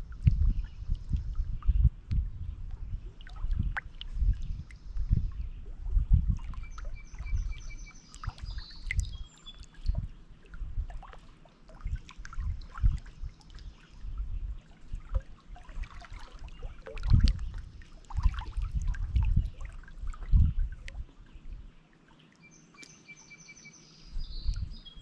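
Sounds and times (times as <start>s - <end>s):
high trilling birdsong: 6.2s - 10.1s, 22.4s - 25.0s.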